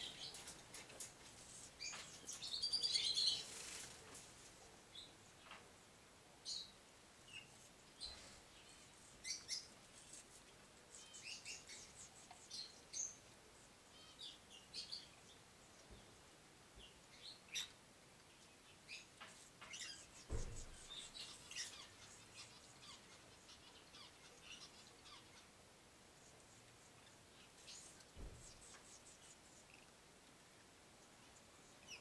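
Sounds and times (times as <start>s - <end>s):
birds chirping: 0.0s - 4.2s, 4.8s - 25.6s, 26.2s - 29.9s
dull thump: 20.3s - 21.0s, 28.2s - 28.6s.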